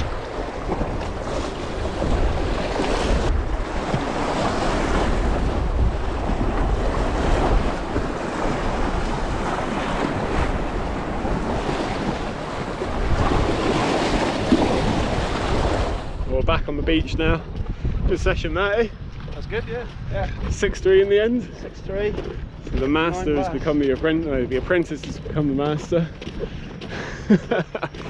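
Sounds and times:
surf breaking against rocks: 0.0s - 16.3s
wind buffeting microphone: 0.0s - 28.0s.

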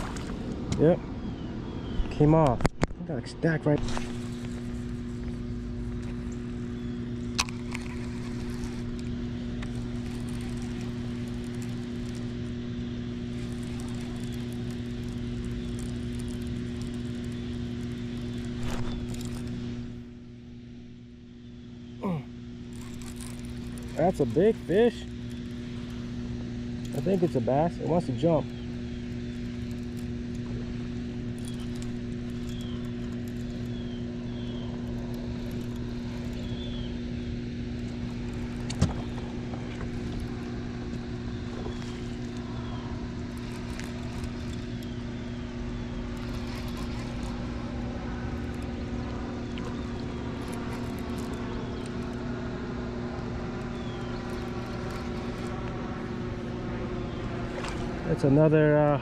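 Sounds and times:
low electric hum: 0.0s - 59.0s.

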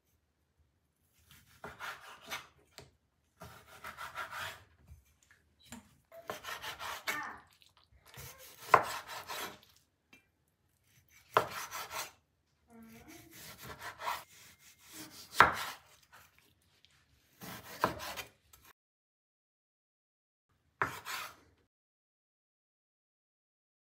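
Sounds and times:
cleaver slicing through meat: 6.3s - 9.8s, 10.8s - 12.2s, 13.0s - 18.4s.

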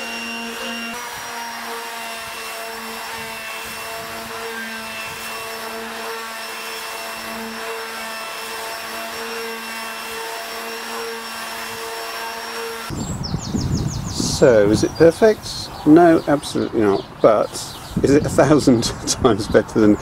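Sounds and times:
orbital sander running: 0.0s - 13.0s.

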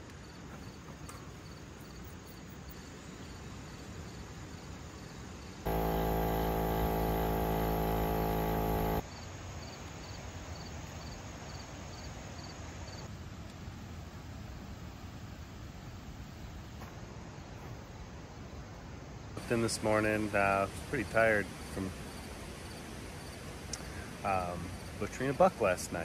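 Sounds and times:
crickets chirping: 0.2s - 5.2s, 5.8s - 13.1s, 16.4s - 25.0s
buzzy humming machine: 5.7s - 9.0s.

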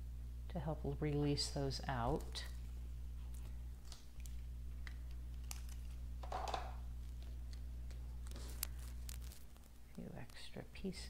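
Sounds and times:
steady low hum: 0.0s - 11.0s
light clicks and taps on foil paper: 7.0s - 10.5s.

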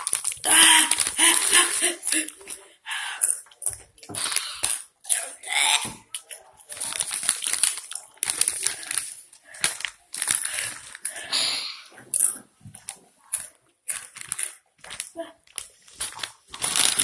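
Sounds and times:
plastic chip bag crinkling: 0.0s - 2.6s, 6.1s - 11.4s, 12.2s - 17.0s.

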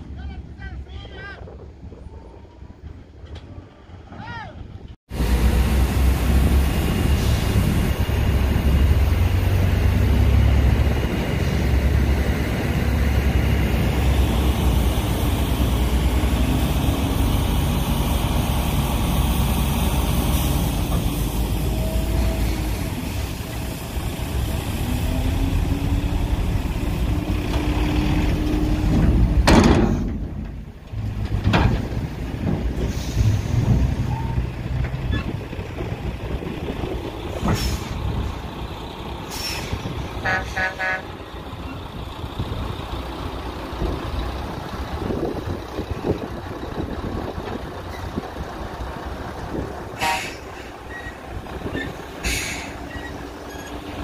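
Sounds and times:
diesel truck engines running: 1.5s - 54.0s
truck horn toot: 40.2s - 41.2s, 50.0s - 50.4s.

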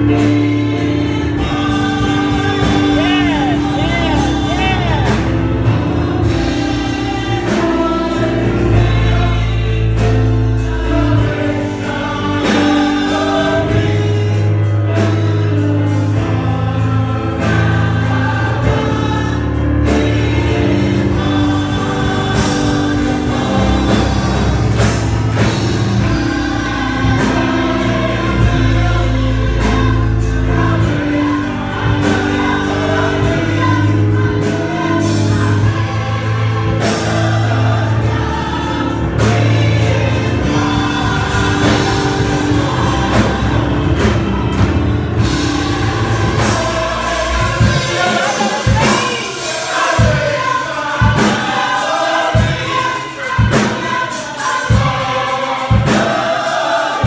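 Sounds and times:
gospel choir singing: 0.0s - 57.0s
instrumental accompaniment: 0.0s - 57.0s
deep bass line: 1.1s - 11.5s.

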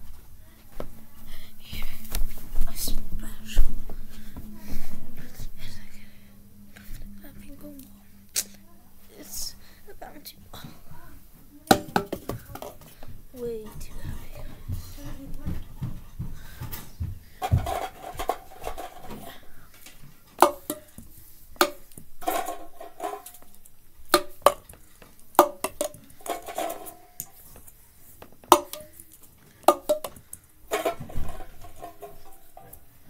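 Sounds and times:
ping pong balls hitting plastic cups: 11.7s - 13.1s, 17.4s - 32.8s.

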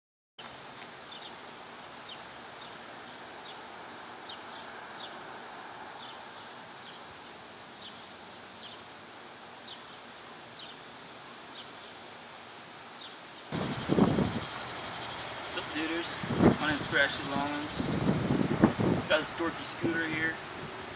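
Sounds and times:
steady background hiss: 0.4s - 20.9s
insect trill: 0.5s - 20.9s
bird chirping: 13.0s - 20.1s.

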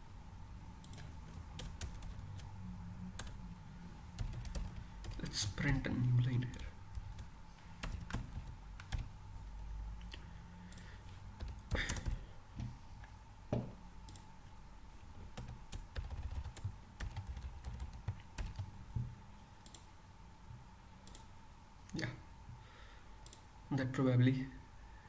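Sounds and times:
faint steady hum: 0.0s - 25.0s
computer keyboard typing: 0.8s - 2.5s, 3.1s - 3.4s, 4.2s - 9.1s, 10.7s - 12.7s, 15.4s - 18.7s.

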